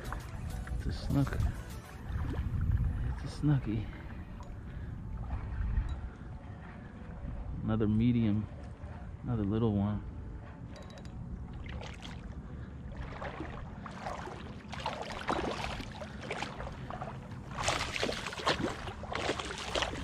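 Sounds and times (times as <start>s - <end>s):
fish splashing in water: 11.6s - 12.3s, 12.9s - 20.0s.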